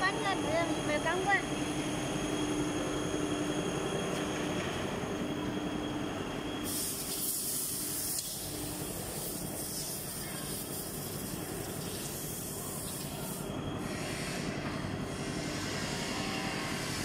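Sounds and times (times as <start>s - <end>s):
factory machinery hum: 0.0s - 17.0s
high hiss: 6.6s - 13.5s.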